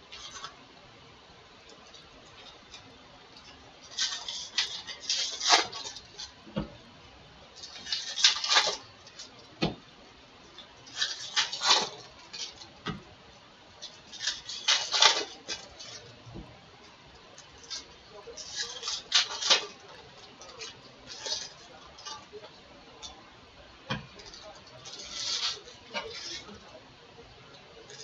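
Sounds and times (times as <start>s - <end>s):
foil wrappers crinkling: 0.1s - 0.6s, 1.6s - 6.7s, 7.6s - 9.8s, 10.4s - 13.0s, 13.8s - 16.2s, 16.8s - 23.1s, 24.2s - 26.8s, 27.5s - 28.0s.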